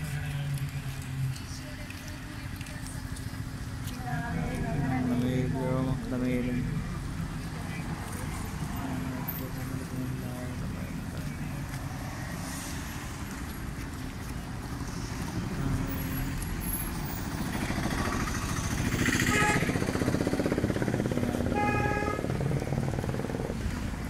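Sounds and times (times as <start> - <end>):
vehicle engine running: 13.2 - 24.0.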